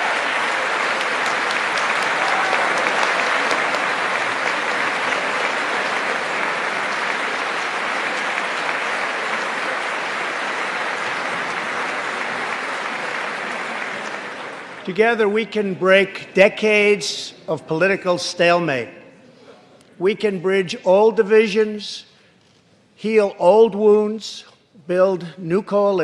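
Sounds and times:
large audience applauding: 0.0 - 15.2.

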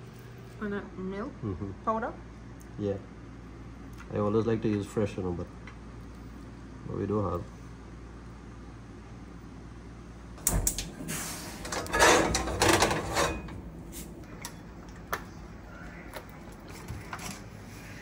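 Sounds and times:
kitchen utensils clattering: 11.6 - 13.7.

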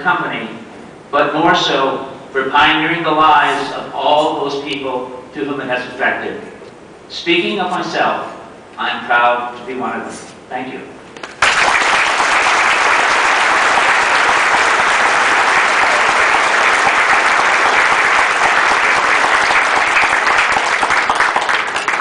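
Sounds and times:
audience applauding: 11.2 - 22.0.

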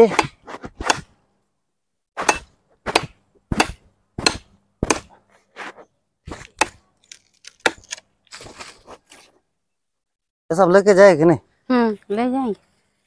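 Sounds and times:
blade chopping dry branch: 0.1 - 1.1, 2.2 - 5.2, 6.3 - 8.8.

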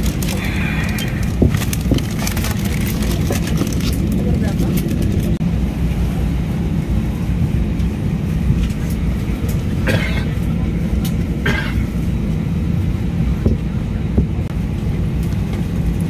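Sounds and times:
aircraft cabin rumble: 0.0 - 16.0.

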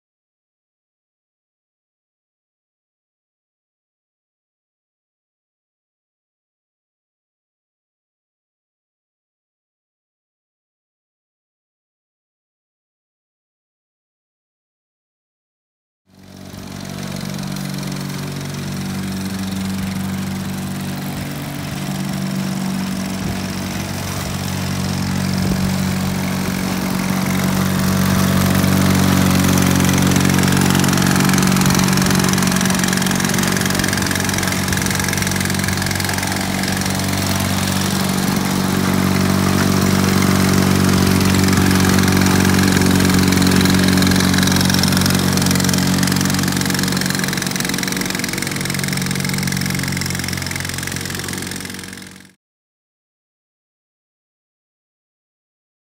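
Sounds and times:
riding mower engines running: 16.1 - 52.3.

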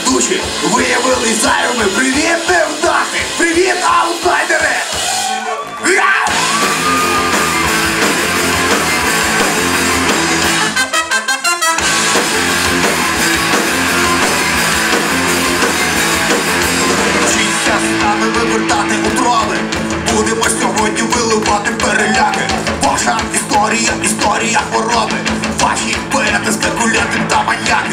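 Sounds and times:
live rock band playing: 0.0 - 27.9
person singing: 16.8 - 27.9.

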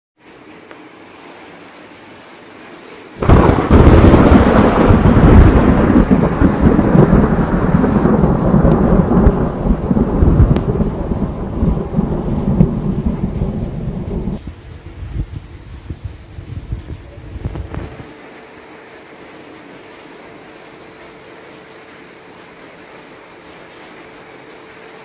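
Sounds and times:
thunder crack and rumble: 3.2 - 18.1.

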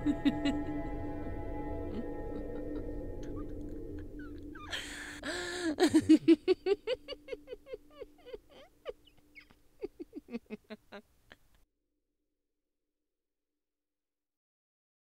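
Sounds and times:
woman laughing: 0.0 - 1.0, 1.9 - 11.6.

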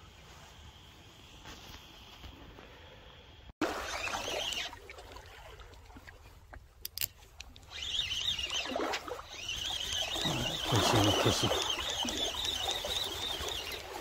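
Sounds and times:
fishing reel clicks: 6.8 - 8.7
fishing reel whirring: 7.0 - 14.0.

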